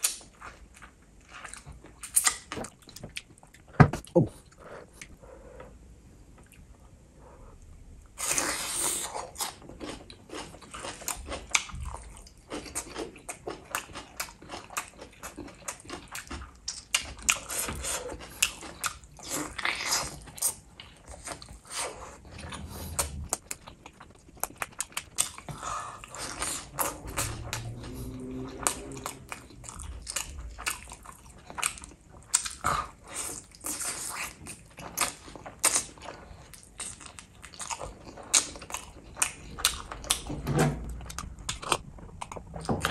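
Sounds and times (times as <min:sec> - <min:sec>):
wet chewing: 0:08.2 - 0:40.3.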